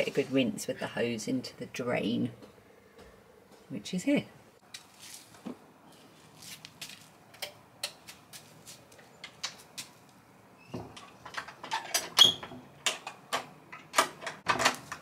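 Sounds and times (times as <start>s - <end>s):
door latch clicks and rattles: 10.9s - 15.0s.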